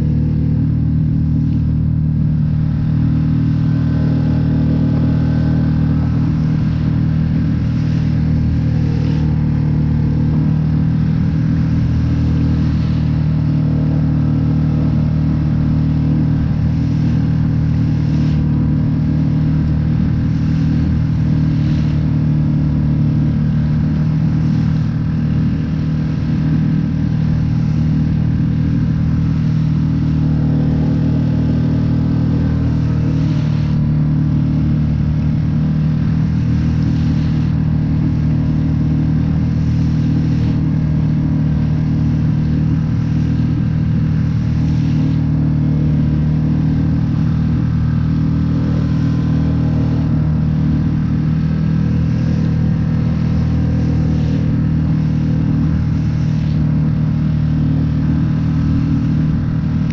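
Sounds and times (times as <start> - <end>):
outboard motor droning: 0.0 - 59.9
hull slapping through waves: 3.2 - 59.9.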